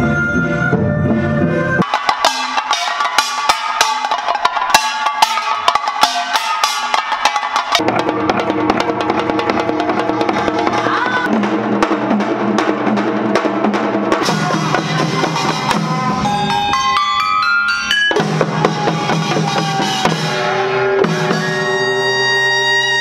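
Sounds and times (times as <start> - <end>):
hourglass drum strokes: 1.8 - 22.1
band playing held notes: 1.8 - 23.0.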